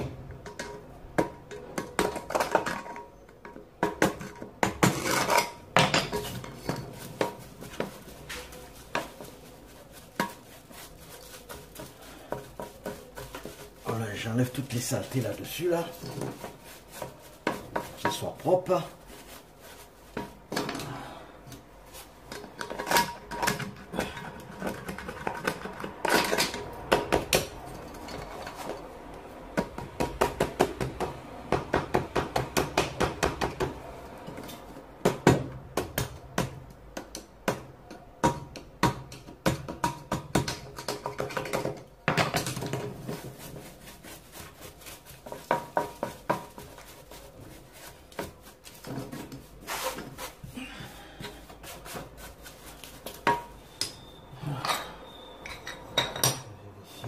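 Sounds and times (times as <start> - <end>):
scraper scraping tiles: 4.2 - 21.0, 42.4 - 53.2
brush scrubbing tiles: 5.3 - 21.0, 40.6 - 53.6.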